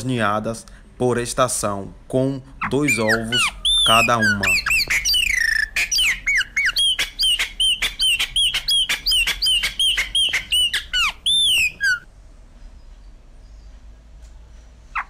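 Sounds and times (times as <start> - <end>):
bird calling with squeaky whistles: 2.6 - 12.1
bird sharp clicks: 3.9 - 12.0.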